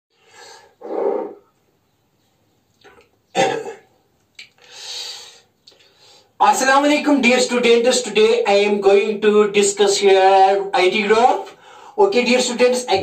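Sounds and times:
man clearing throat and coughing: 3.4 - 3.9.

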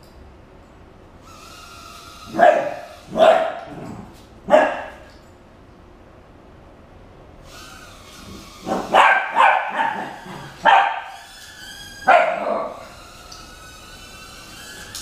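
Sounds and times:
puppy barking: 2.3 - 3.7, 4.5 - 5.1, 8.7 - 11.2, 12.1 - 12.8.

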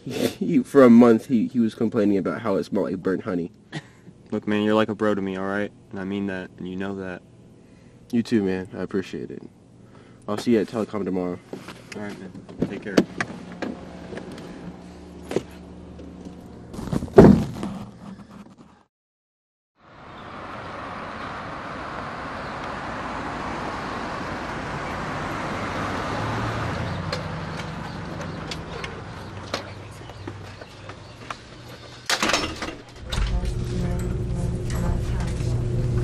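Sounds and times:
street noise: 11.5 - 17.0, 19.8 - 36.0
footstep clicks: 26.9 - 32.1.

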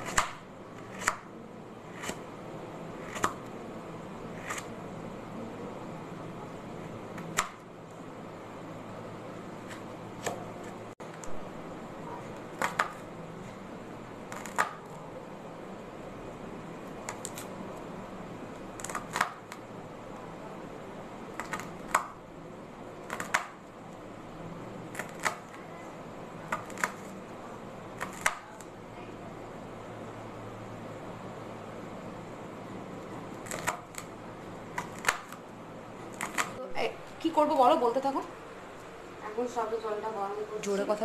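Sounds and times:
knife chopping on wooden board: 0.0 - 1.3, 1.9 - 2.2, 34.7 - 35.4
steady background hum: 0.0 - 41.0.

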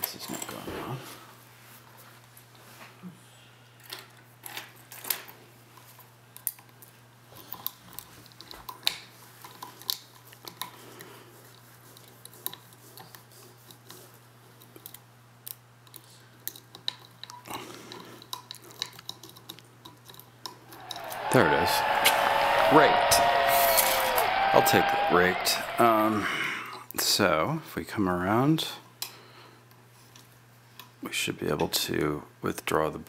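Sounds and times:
lock picks clicking and scraping: 18.2 - 20.6.

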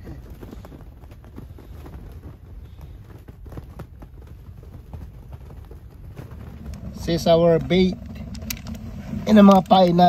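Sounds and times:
wind rumble on microphone: 4.9 - 10.0.

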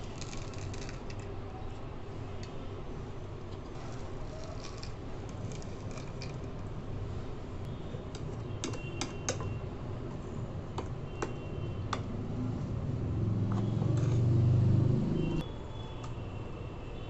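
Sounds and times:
spoon stirring wet paste: 3.5 - 6.6.

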